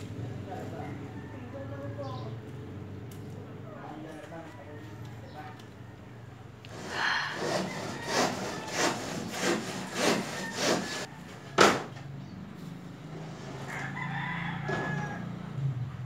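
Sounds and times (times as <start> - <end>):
rhythmic rasping strokes: 6.7 - 11.1.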